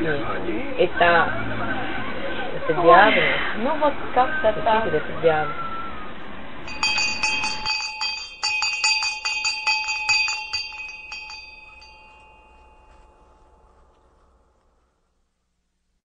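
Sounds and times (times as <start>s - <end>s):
small bells ringing: 6.6s - 14.5s.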